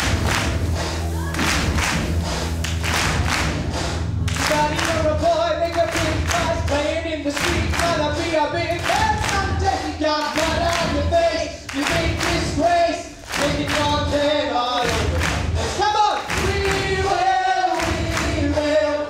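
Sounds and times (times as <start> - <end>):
steady beat: 0.0 - 19.0
chorus singing rock song: 7.6 - 19.0.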